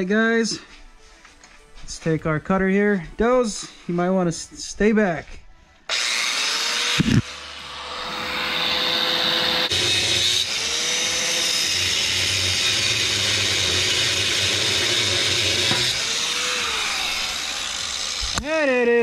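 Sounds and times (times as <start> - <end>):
angle grinder cutting steel: 5.9 - 18.5.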